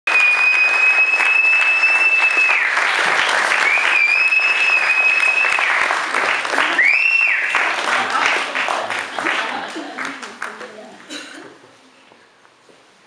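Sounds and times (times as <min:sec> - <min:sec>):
thin high whistle: 0:00.1 - 0:02.8, 0:03.6 - 0:05.8.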